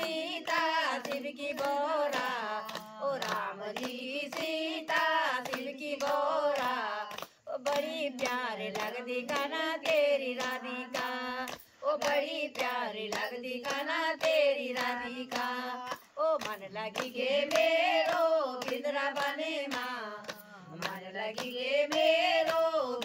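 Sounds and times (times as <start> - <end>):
hands clapping in rhythm: 0.0 - 23.0
women singing together: 0.0 - 23.0.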